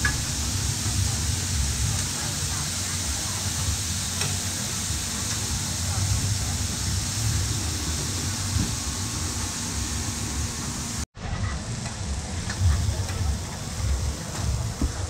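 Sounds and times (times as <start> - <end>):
meat sizzling on a griddle: 0.0 - 8.6.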